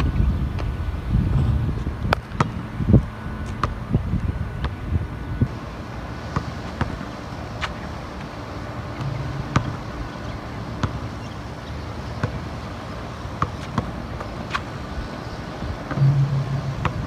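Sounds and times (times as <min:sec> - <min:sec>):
outdoor background noise: 0:00.0 - 0:17.0
basketball bouncing on asphalt: 0:01.8 - 0:02.7, 0:03.4 - 0:03.8, 0:06.3 - 0:07.0, 0:09.0 - 0:12.6, 0:13.3 - 0:14.6.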